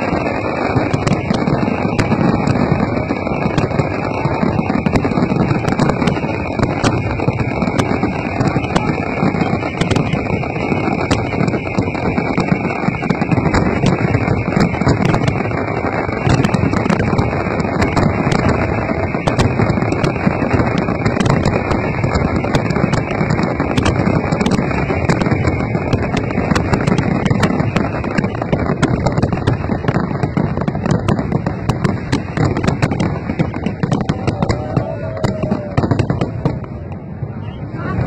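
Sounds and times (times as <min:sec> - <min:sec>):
fireworks bangs: 0:00.0 - 0:38.0
fireworks crackling pops: 0:00.0 - 0:38.0.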